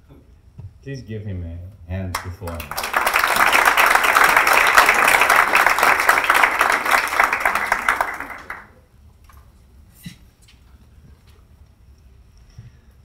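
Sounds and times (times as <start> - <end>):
audience applauding: 2.2 - 8.8.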